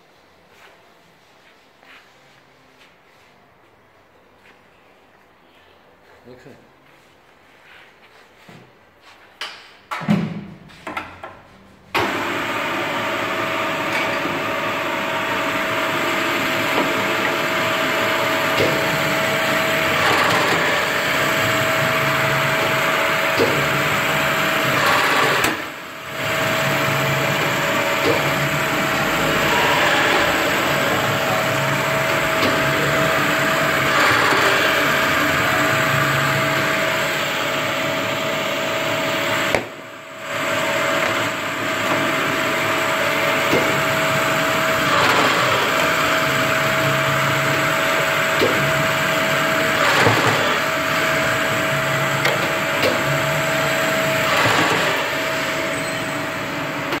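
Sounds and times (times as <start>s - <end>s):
paper drilling machine running: 12.0s - 57.0s.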